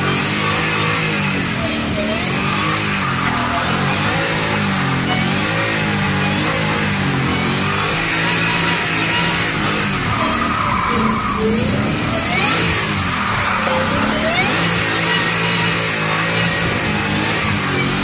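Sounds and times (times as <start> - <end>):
car engine revving hard: 0.0 - 18.0
tyres squealing on pavement: 0.0 - 18.0.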